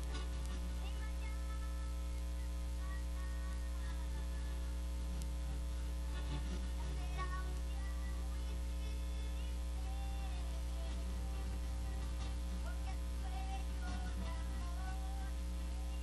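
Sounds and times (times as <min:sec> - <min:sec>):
electrical mains hum: 0:00.0 - 0:16.0
faint music and singing: 0:00.0 - 0:16.0.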